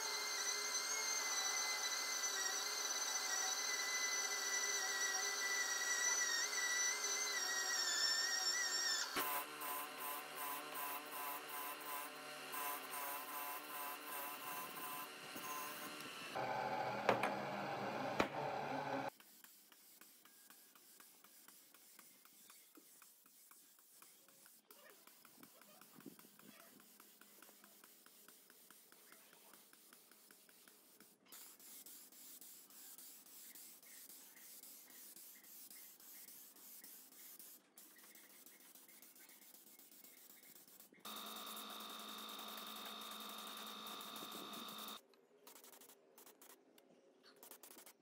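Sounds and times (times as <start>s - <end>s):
paint spray gun hissing: 41.1s - 45.0s.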